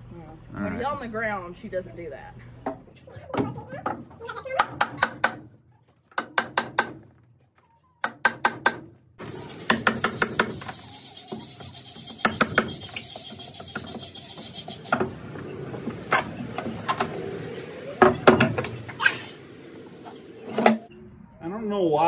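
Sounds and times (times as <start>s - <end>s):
rattling scraping clatter: 9.2s - 21.0s.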